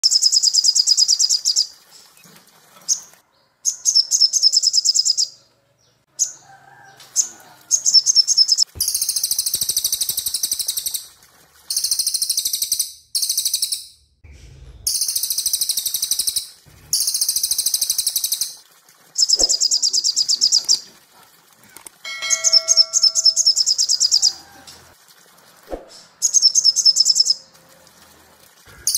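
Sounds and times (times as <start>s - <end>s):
songbirds rapid trilling: 14.9s - 28.9s.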